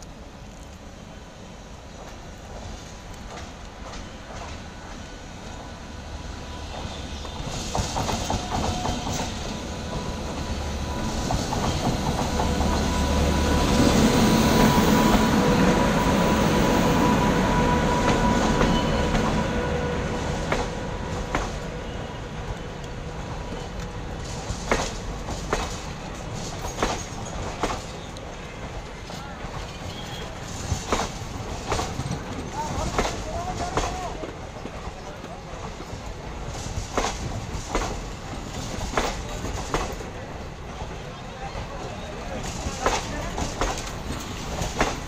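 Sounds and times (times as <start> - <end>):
electric locomotive passing: 0.0 - 45.0
wheels clacking over rail joints: 23.5 - 40.2, 42.3 - 45.0.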